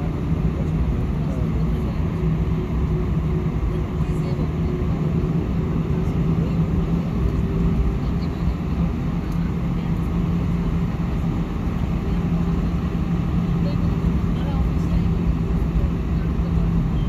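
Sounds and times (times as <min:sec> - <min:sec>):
airliner cabin engine hum: 0:00.0 - 0:17.0.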